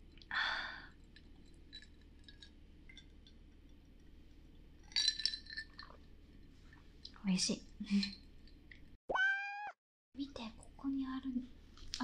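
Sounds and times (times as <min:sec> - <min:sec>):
faint small clicks: 0:11.8 - 0:12.0.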